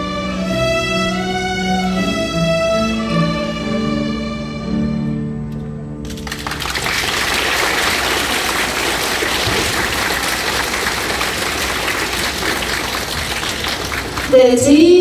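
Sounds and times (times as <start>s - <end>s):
violin ensemble with piano: 0.0s - 5.2s
audience applause: 6.1s - 14.6s.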